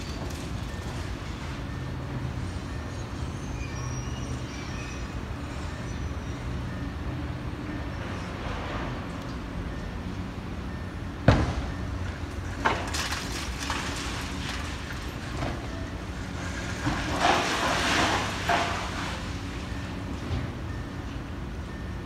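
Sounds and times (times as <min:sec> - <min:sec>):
falling rubble: 0:12.6 - 0:19.3.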